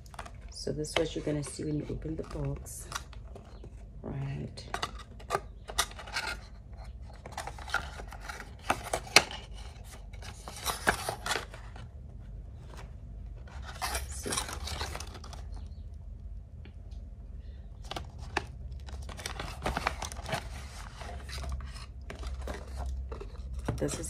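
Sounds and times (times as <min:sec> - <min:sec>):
packaging rustling: 0:04.9 - 0:15.8, 0:17.8 - 0:24.0.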